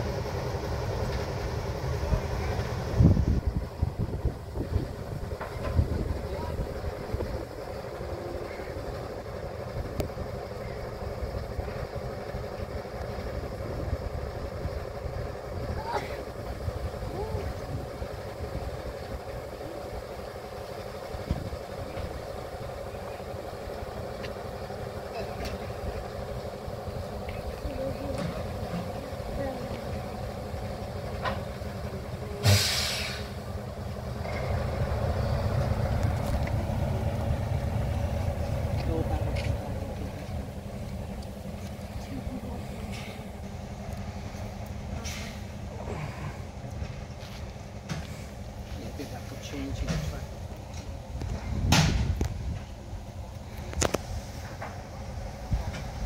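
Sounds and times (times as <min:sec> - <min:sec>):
diesel locomotive rumble: 0:00.0 - 0:56.0
hiss of released air: 0:32.4 - 0:33.4, 0:45.0 - 0:46.3.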